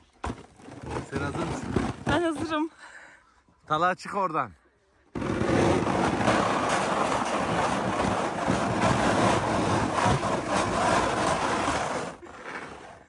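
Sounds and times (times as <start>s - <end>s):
sled runners scraping on snow: 0.3s - 2.7s, 5.2s - 13.0s.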